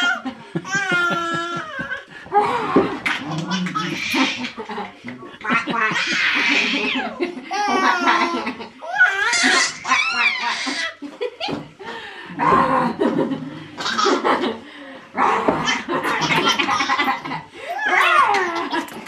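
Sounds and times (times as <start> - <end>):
baby laughing: 0.0 - 2.1, 5.4 - 11.0, 15.8 - 19.0.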